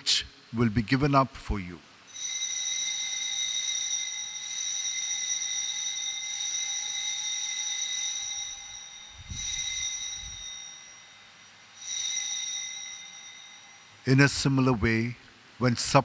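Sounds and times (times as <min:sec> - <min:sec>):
altar bell ringing: 0:02.1 - 0:14.2.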